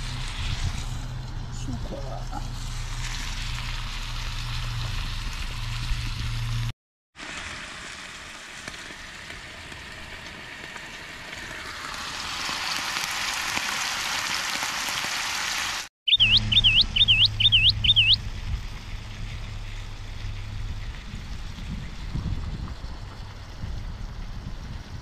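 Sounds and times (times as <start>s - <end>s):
meat sizzling in a pan: 2.5s - 6.6s, 7.2s - 15.9s
low hum: 16.1s - 25.0s.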